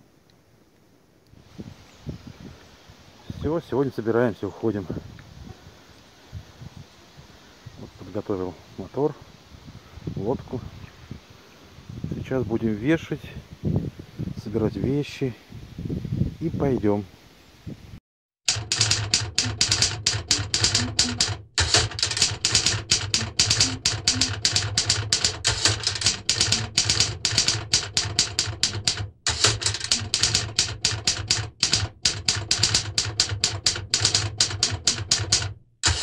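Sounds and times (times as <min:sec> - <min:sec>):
typewriter key clacks: 0:18.5 - 0:36.0.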